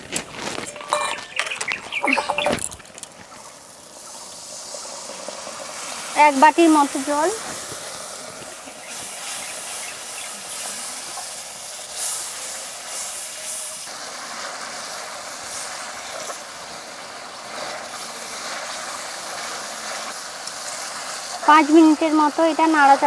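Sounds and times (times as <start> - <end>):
curry boiling and sizzling: 0.0 - 23.0
metal spatula stirring: 0.5 - 2.7.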